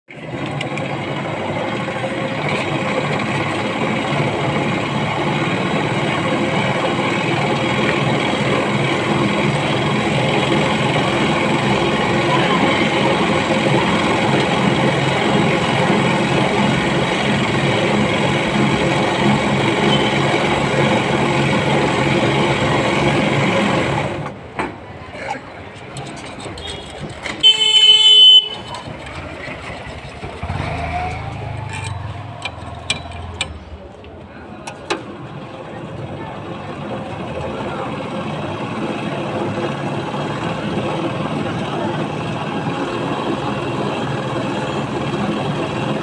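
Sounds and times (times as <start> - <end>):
cotton candy machine whirring: 0.1 - 24.3.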